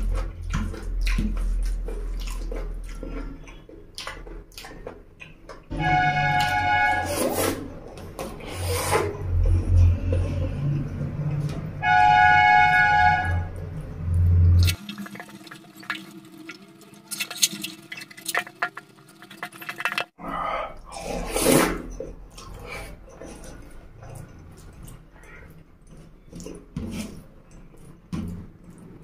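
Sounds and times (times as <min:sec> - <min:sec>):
chewing and lip smacks: 0:00.0 - 0:05.7, 0:21.9 - 0:28.0.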